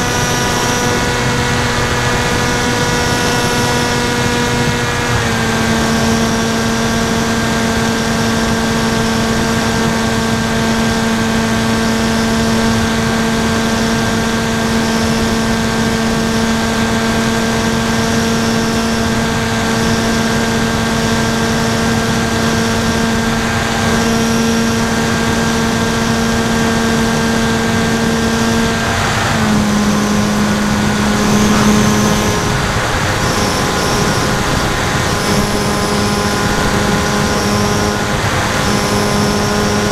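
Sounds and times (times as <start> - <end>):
propeller motor droning: 0.0 - 39.9.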